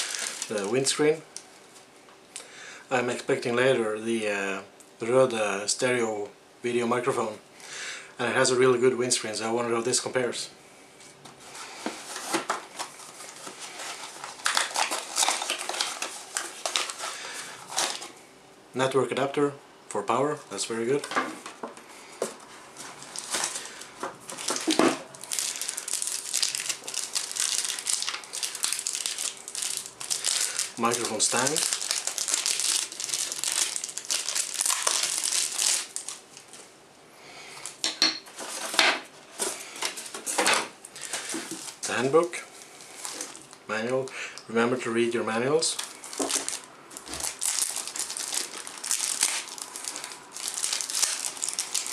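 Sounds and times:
cardboard packaging rustling: 0.0s - 1.0s, 11.4s - 18.2s, 22.2s - 36.7s, 37.6s - 43.6s, 45.7s - 51.9s.

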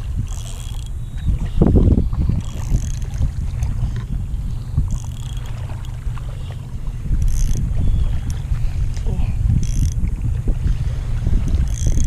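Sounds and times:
low wind rumble on microphone: 0.0s - 12.0s
fishing reel clicks: 0.2s - 1.1s, 2.4s - 3.2s, 4.9s - 6.0s, 7.2s - 8.4s, 9.6s - 10.0s, 11.7s - 12.0s.

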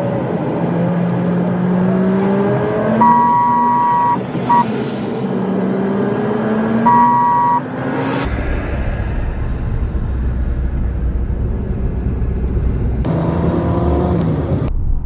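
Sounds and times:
car engine accelerating: 0.0s - 14.7s
two-note car horn: 6.9s - 7.6s.

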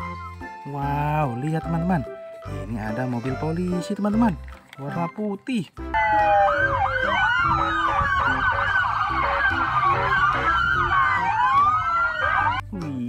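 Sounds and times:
police sirens wailing: 5.9s - 12.6s.

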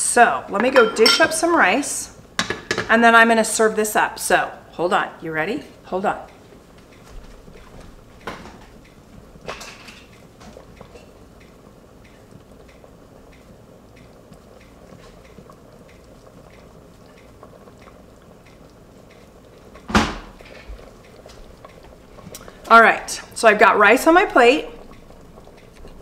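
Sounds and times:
dishes clinking: 0.5s - 1.5s
dishes clattering: 0.6s - 1.5s, 2.4s - 2.9s
faint ticking of sauce bubbling: 5.7s - 26.0s.

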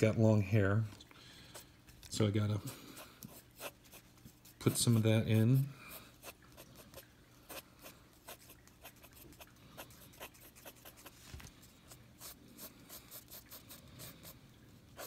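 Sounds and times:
pencil scratching on paper: 3.2s - 7.6s, 8.2s - 11.2s, 12.2s - 14.4s.

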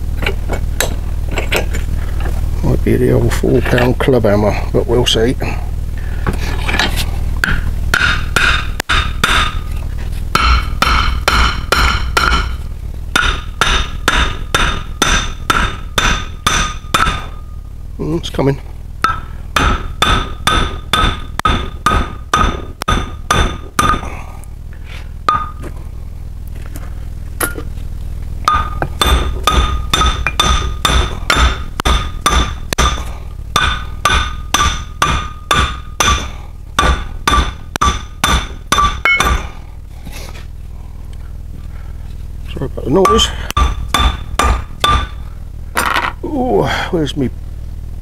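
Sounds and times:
hammer striking steel: 7.4s - 9.7s, 10.3s - 17.5s, 19.0s - 24.2s, 25.3s - 25.6s, 27.4s - 27.7s, 28.4s - 39.6s, 43.0s - 45.2s.

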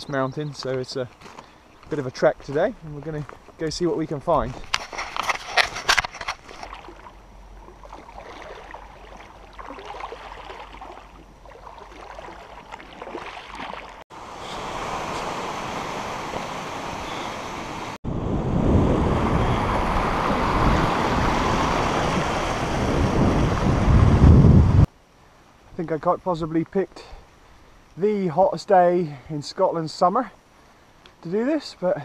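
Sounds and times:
shallow river running: 0.0s - 32.0s
splashes of wading: 5.4s - 17.3s
wind buffeting microphone: 18.0s - 24.9s.

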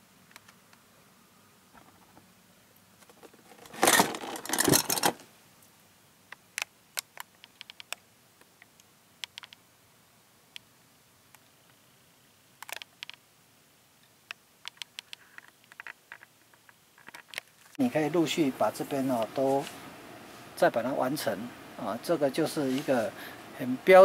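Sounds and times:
rustling and knocking: 1.7s - 2.3s
light clicks and ticks: 6.3s - 9.6s, 14.0s - 17.8s.

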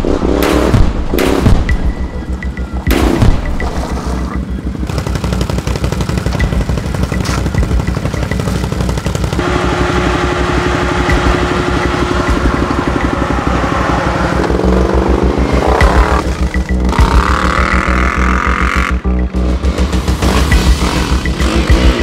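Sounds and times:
music with steady beat: 0.1s - 4.0s, 10.8s - 22.0s
atv engine running: 2.0s - 22.0s.

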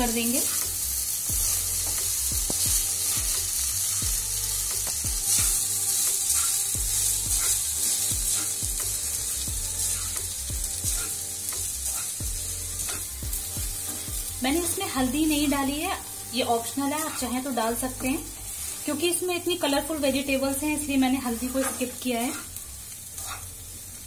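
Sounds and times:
light sizzle: 0.0s - 24.0s
spatula scraping a pan: 4.9s - 14.3s, 16.5s - 19.2s, 20.9s - 23.6s.

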